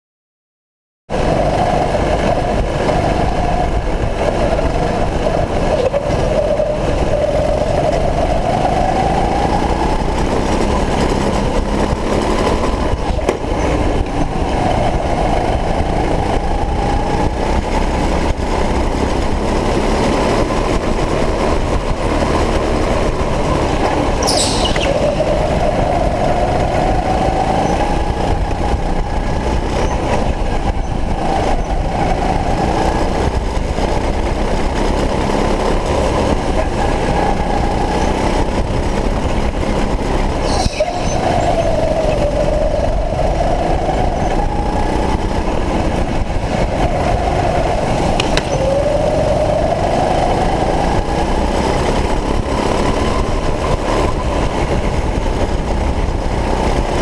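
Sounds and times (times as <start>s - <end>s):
go-kart engine running hard: 1.1s - 57.0s
brief high squeal: 24.2s - 25.1s, 40.4s - 41.2s.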